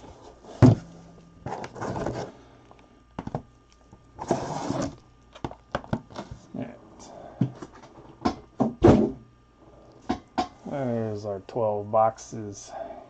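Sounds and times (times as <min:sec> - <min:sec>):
cardboard sliding and scraping: 0:00.1 - 0:02.3, 0:04.2 - 0:05.0
box thumping down: 0:00.5 - 0:02.3, 0:08.6 - 0:09.2.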